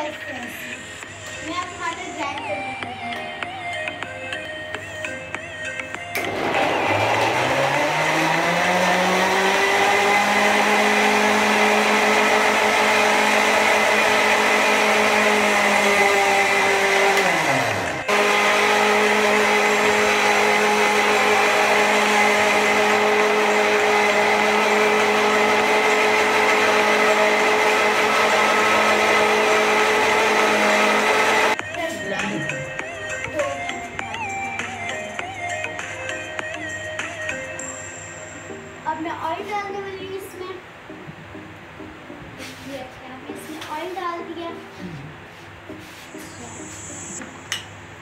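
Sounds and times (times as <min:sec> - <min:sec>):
blender motor running: 0:06.2 - 0:31.6.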